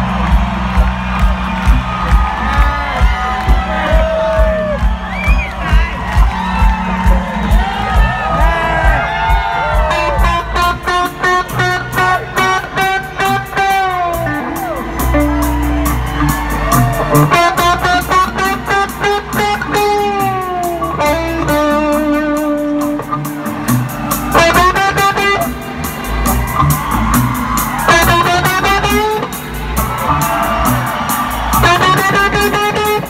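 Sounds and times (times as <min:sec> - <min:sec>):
rock band playing live: 0:00.0 - 0:33.0
lead electric guitar bending notes: 0:09.9 - 0:33.0.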